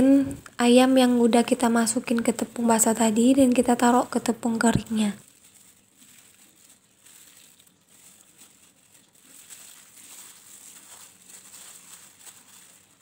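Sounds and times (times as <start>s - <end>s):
flour rustling: 0.0s - 13.0s
plastic glove crinkling: 0.0s - 13.0s.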